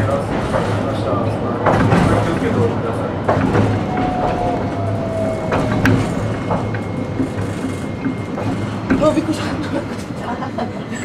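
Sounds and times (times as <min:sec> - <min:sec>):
tram wheels rumbling: 0:00.0 - 0:11.0
faint falling whine: 0:02.9 - 0:09.2.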